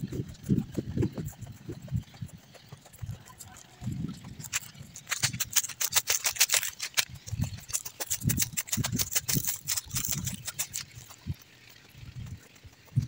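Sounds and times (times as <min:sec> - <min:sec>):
footsteps on dirt path: 0:00.0 - 0:13.0
dry leaves crunching underfoot: 0:04.4 - 0:12.6.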